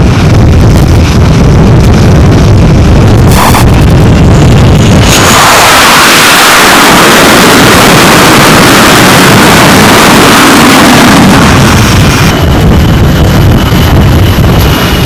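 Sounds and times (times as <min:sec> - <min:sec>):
jet engines roaring: 0:00.0 - 0:15.0.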